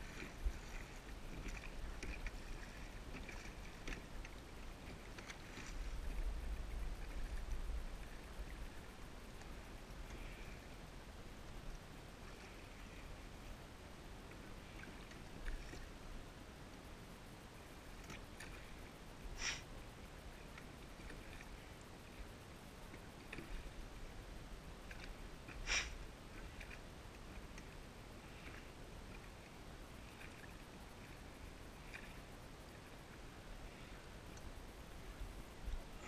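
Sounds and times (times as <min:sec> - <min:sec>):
water lapping: 0:00.0 - 0:10.8, 0:14.3 - 0:16.0, 0:20.4 - 0:22.1, 0:24.8 - 0:36.0
light oar noises: 0:00.0 - 0:36.0.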